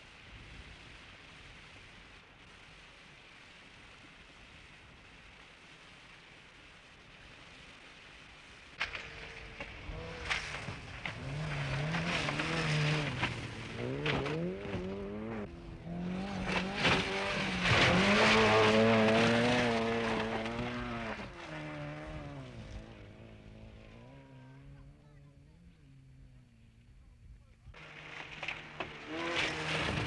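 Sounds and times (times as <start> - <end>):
car engine revving through gears: 9.1 - 24.8, 27.8 - 30.0.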